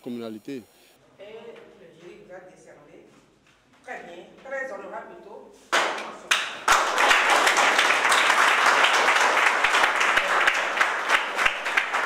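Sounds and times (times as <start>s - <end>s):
audience applauding: 6.3s - 12.0s.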